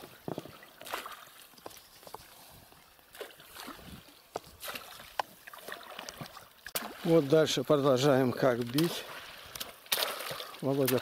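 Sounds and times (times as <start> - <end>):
low water noise: 0.0 - 11.0
poles splashing on water: 4.6 - 11.0.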